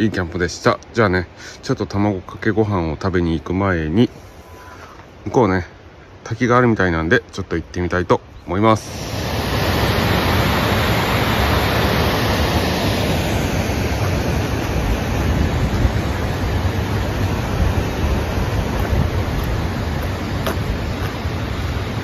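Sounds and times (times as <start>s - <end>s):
stream rushing over rocks: 8.5s - 22.0s.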